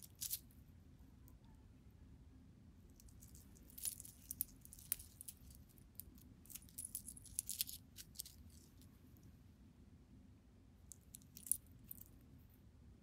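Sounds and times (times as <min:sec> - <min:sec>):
metal chain necklace jingling: 0:03.3 - 0:05.6, 0:11.2 - 0:12.1.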